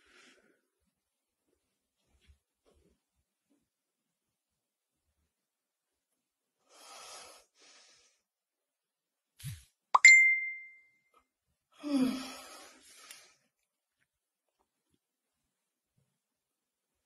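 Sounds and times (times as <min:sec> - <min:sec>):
short ringing ding: 0:10.0 - 0:10.8.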